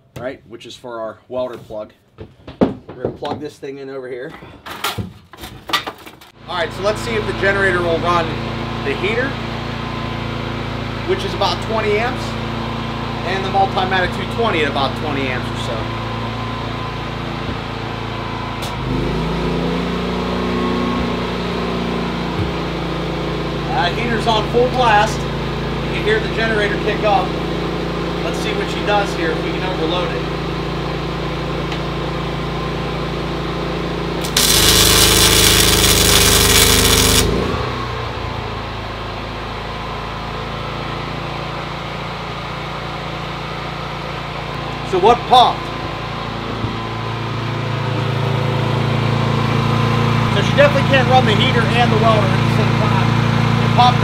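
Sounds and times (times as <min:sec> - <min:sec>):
generator engine running: 0:06.4 - 0:54.0
welding arc crackling hiss: 0:34.2 - 0:37.5.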